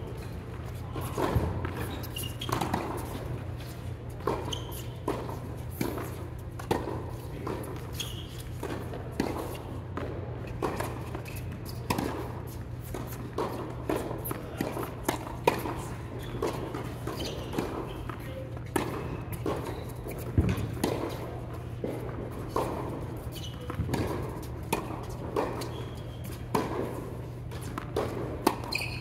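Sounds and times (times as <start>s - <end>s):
tennis balls struck and bouncing: 0.1s - 29.0s.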